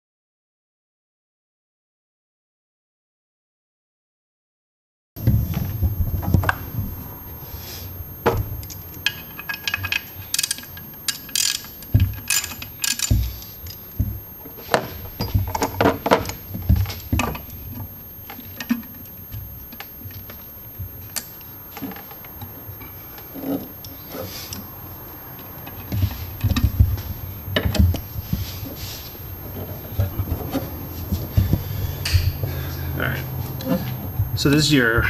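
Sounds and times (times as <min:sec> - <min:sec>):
tools and metal parts clinking: 0:08.7 - 0:13.8.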